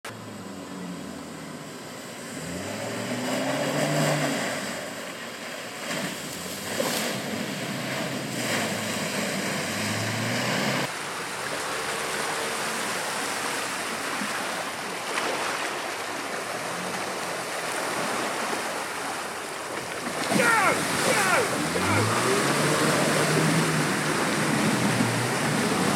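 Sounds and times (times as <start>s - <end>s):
vehicle engine: 0.0s - 14.0s, 20.2s - 25.9s
water rushing and sloshing: 0.1s - 25.9s.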